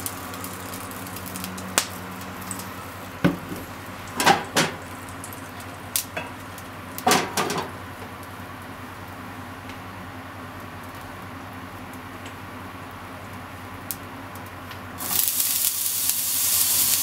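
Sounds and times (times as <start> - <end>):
frying pan knocking on burner grate: 3.2 - 4.9, 7.0 - 7.8.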